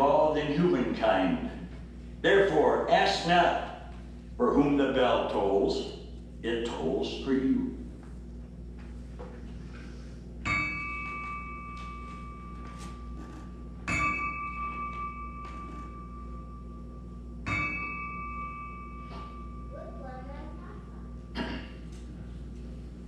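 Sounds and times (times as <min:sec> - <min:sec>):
small bell tolling: 0:13.9 - 0:19.7.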